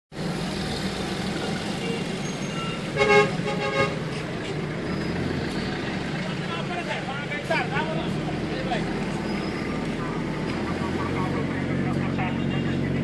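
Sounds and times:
street traffic: 0:00.1 - 0:13.0
vehicle engine hum: 0:00.1 - 0:13.0
vehicle horn tooting: 0:01.8 - 0:04.0.

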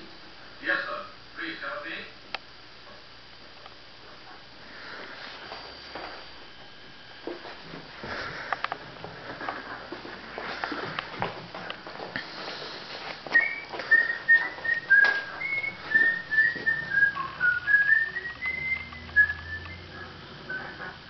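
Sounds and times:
person whistling a tune: 0:13.3 - 0:21.0.

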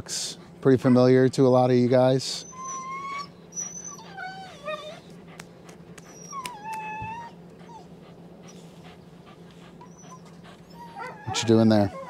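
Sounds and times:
dog whining: 0:02.4 - 0:05.4, 0:06.0 - 0:12.0.

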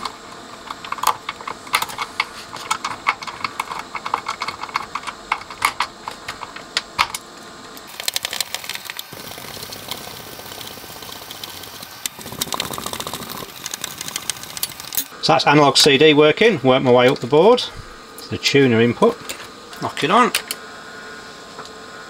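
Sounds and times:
screwdriver clicking and rasping: 0:10.8 - 0:15.1.

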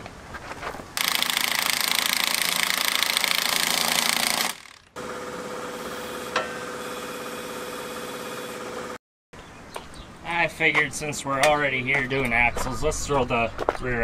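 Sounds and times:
impact wrench rattling: 0:01.0 - 0:05.0
steady machine hum: 0:04.2 - 0:09.0.

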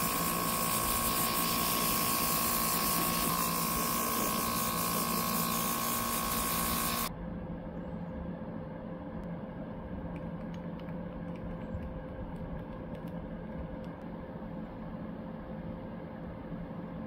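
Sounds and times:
air compressor humming: 0:00.0 - 0:07.1.

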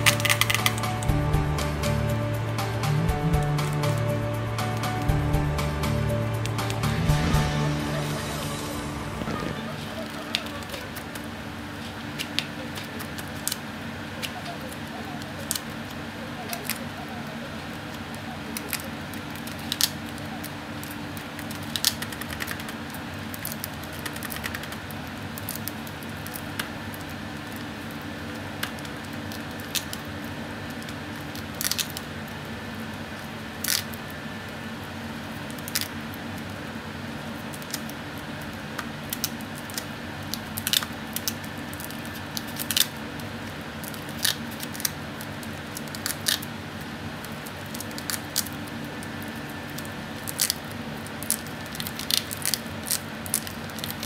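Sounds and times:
taped paper crinkling: 0:00.0 - 0:01.1, 0:09.3 - 0:32.3, 0:39.0 - 0:54.0
steady background hum: 0:00.0 - 0:54.0.

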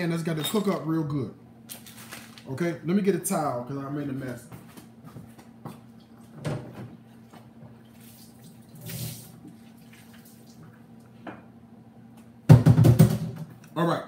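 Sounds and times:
water running from a tap: 0:07.9 - 0:10.8.

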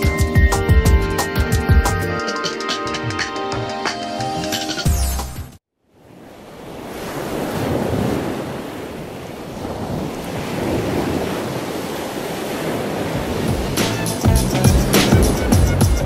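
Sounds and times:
sea surf washing on beach: 0:05.9 - 0:16.0
wind on microphone: 0:07.1 - 0:16.0.

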